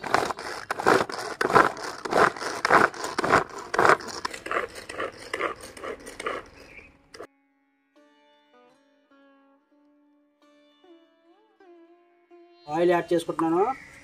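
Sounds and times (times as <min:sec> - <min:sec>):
pull cord chopper whirring: 0:00.0 - 0:07.3.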